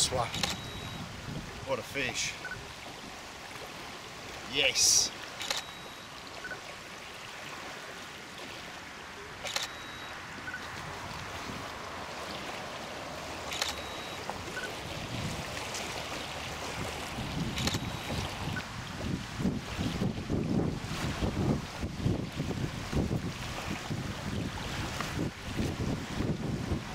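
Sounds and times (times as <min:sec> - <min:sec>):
wind buffeting microphone: 0:00.0 - 0:01.7, 0:10.4 - 0:11.9, 0:14.4 - 0:26.9
lake water: 0:00.0 - 0:26.9
wind: 0:00.0 - 0:26.9
sharp short click: 0:00.3 - 0:00.8, 0:05.4 - 0:05.8, 0:09.4 - 0:09.9.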